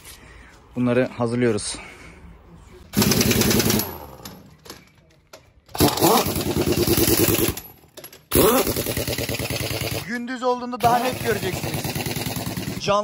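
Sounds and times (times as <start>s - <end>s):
pneumatic impact wrench hammering: 2.9s - 4.8s, 5.7s - 10.1s, 10.8s - 12.8s.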